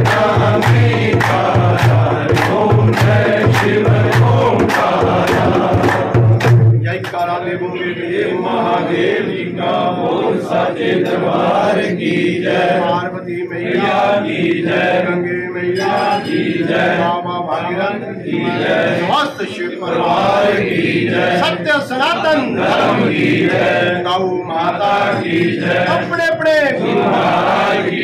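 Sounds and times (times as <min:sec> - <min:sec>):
hand drum: 0:00.0 - 0:06.8
hand claps: 0:00.0 - 0:07.4
men chanting in unison: 0:00.0 - 0:28.0.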